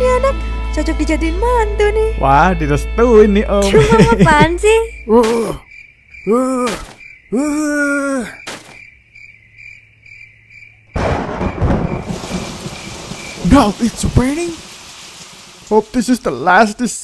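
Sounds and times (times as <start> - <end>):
crickets chirping: 2.7 - 17.0
heavy rain pouring: 3.7 - 4.4, 11.0 - 17.0
man grunting: 6.3 - 8.4.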